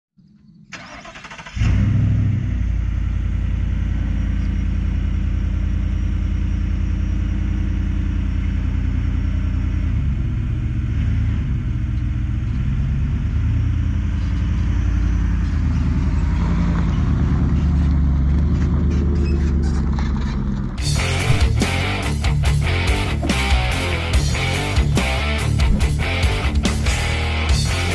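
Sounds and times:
pickup truck engine drone: 0:00.4 - 0:27.9.

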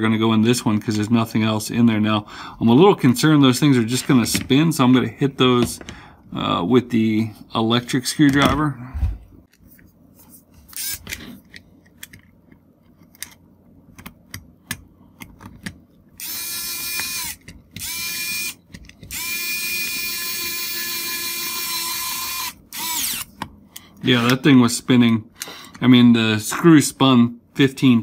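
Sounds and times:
electric screwdriver motor whining: 0:10.8 - 0:11.1, 0:16.2 - 0:23.4.

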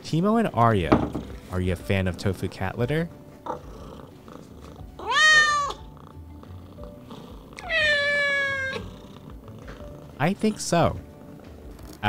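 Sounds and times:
cat meowing: 0:04.7 - 0:06.0, 0:07.1 - 0:09.3.

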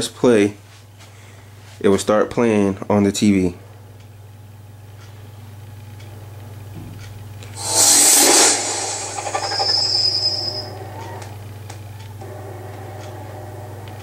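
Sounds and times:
loud whooshing rush: 0:07.6 - 0:10.2
high ringing shimmer: 0:07.6 - 0:11.0.

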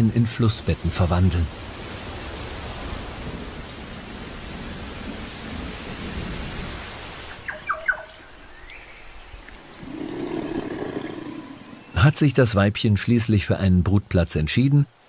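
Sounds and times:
heavy rain on floodwater: 0:00.0 - 0:11.8.

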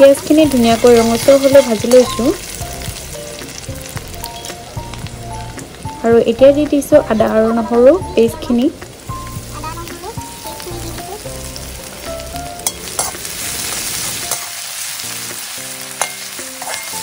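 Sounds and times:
paste sizzling in hot oil: 0:00.0 - 0:17.0
metal spatula scraping wok: 0:15.9 - 0:17.0.

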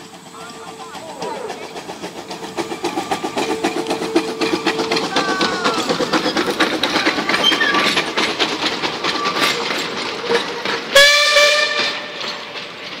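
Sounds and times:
train carriages rattling over track: 0:00.0 - 0:13.0
wheels squealing: 0:00.0 - 0:13.0
steam whistle blast: 0:10.9 - 0:12.0.

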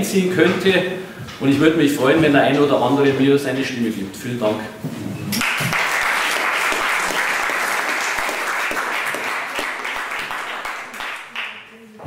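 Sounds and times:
audience applauding: 0:05.4 - 0:11.6.

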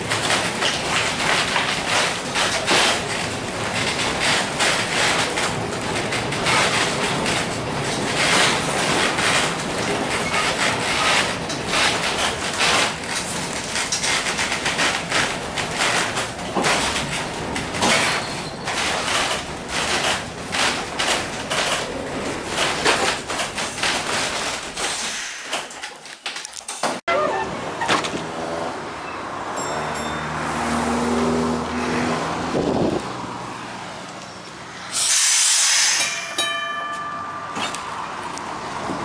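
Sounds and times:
wooden body rattling and knocking: 0:00.0 - 0:24.8
streetcar wheels on rail: 0:00.0 - 0:39.0.

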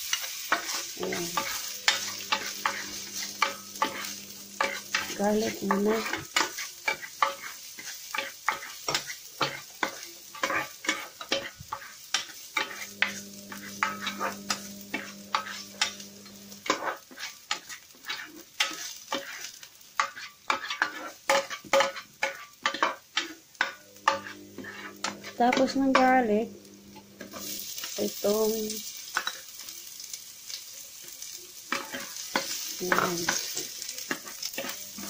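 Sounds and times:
utensil scraping a pan: 0:00.0 - 0:29.5, 0:31.7 - 0:35.0
garlic sizzling in oil: 0:00.0 - 0:35.0.

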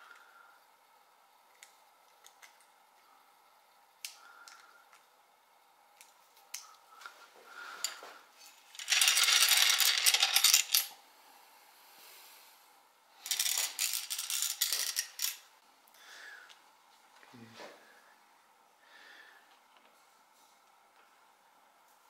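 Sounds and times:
metal screws and nuts rattling: 0:13.2 - 0:15.4.

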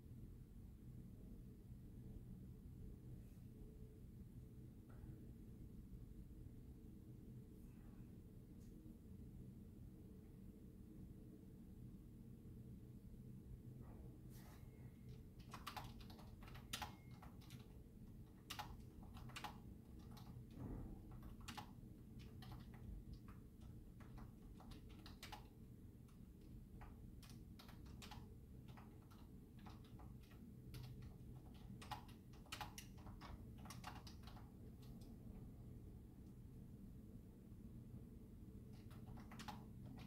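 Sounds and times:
keyboard typing: 0:14.9 - 0:35.2, 0:38.7 - 0:40.0.

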